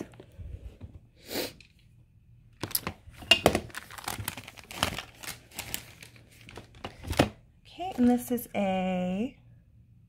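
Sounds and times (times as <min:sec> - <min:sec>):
clothing rustling and crinkling: 0:02.6 - 0:07.4.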